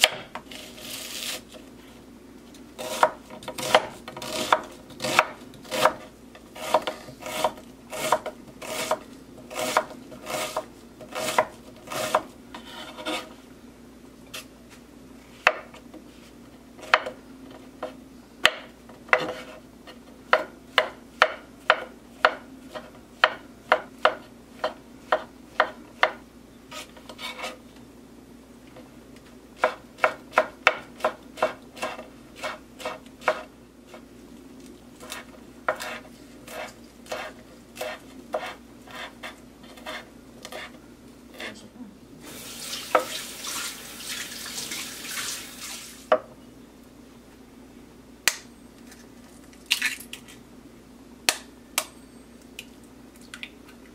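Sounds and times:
knife chopping on cutting board: 0.0 - 0.5, 2.8 - 13.3, 16.8 - 17.2, 17.8 - 19.6, 20.3 - 26.2, 29.6 - 34.0, 35.0 - 40.7.

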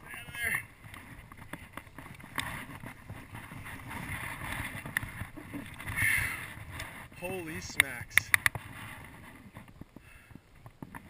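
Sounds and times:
wind buffeting microphone: 0.0 - 11.0
sharp clicks: 7.7 - 8.6.

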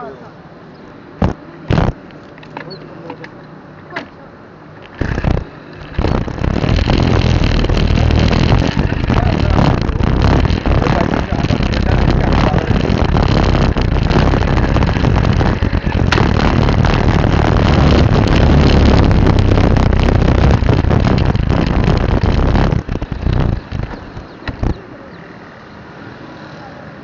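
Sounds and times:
vehicle and road noise: 0.0 - 27.0
wind buffeting microphone: 1.2 - 2.0, 4.8 - 25.0.

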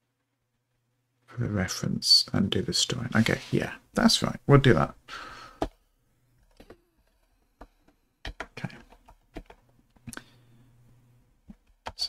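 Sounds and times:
computer keyboard typing: 7.6 - 9.7.

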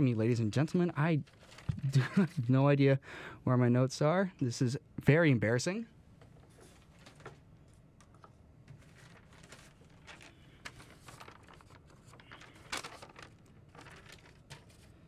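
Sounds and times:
paper rustling: 1.2 - 2.5, 6.2 - 15.0.

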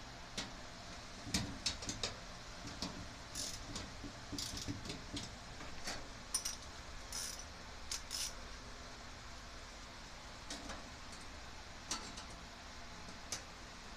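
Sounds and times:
metallic clicks and clinks: 6.3 - 8.4.

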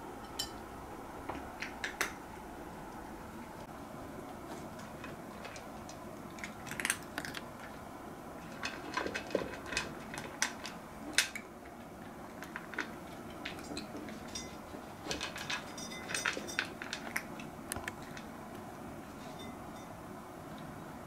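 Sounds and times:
clinks against ceramic bowl: 0.2 - 0.6, 15.6 - 16.8
cat crunching food: 4.5 - 18.7.

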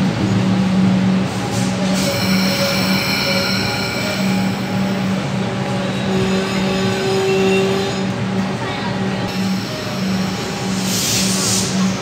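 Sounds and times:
train tone: 1.5 - 8.2, 9.3 - 12.0
train brakes squealing: 1.6 - 8.0.

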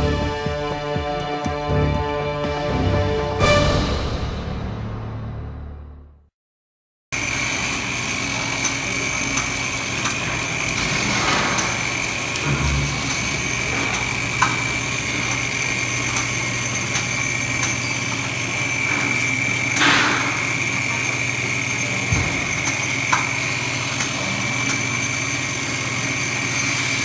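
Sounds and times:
router spindle high whine: 7.2 - 27.0.

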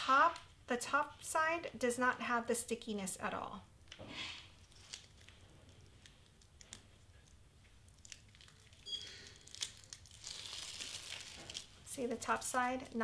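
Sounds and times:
plastic film crinkling: 4.4 - 13.0.

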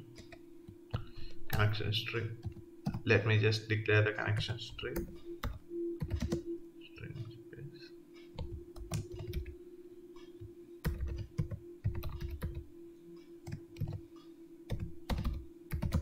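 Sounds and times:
steady low hum: 0.0 - 16.0
keyboard typing: 2.4 - 3.1, 4.4 - 6.5, 8.3 - 9.6, 10.8 - 12.6, 13.4 - 14.1, 14.7 - 16.0.

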